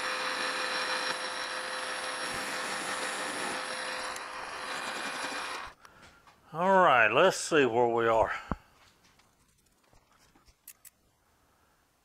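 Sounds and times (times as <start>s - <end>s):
metal lathe humming and whining: 0.0s - 5.8s.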